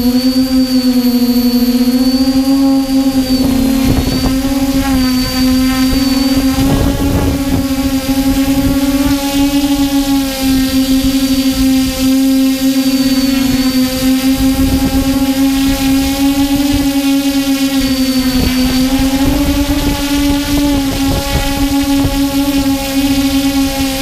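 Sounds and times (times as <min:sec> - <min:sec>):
drone propellers buzzing hum: 0:00.0 - 0:24.0
high whine of drone motors: 0:00.0 - 0:24.0.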